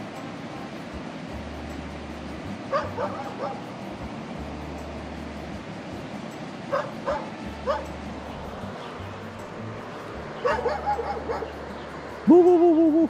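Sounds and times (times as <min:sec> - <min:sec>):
small dog yipping: 0:02.7 - 0:03.6, 0:06.7 - 0:07.9, 0:10.4 - 0:11.6.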